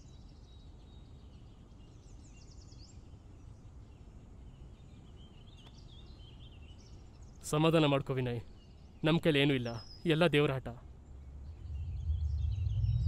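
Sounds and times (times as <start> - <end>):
small birds chirping: 0.0 - 13.0
low background rumble: 10.9 - 13.0.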